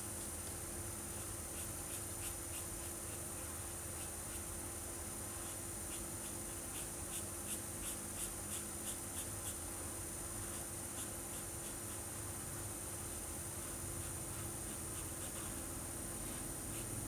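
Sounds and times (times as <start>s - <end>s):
marker pen scratching on paper: 5.4s - 9.7s, 10.4s - 12.0s, 13.6s - 15.6s.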